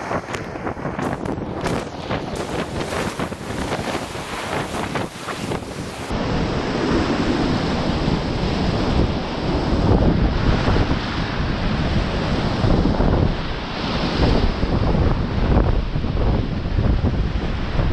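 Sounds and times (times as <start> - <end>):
water noise on microphone: 0.0 - 6.2
whitewater rapids rushing: 2.3 - 6.1.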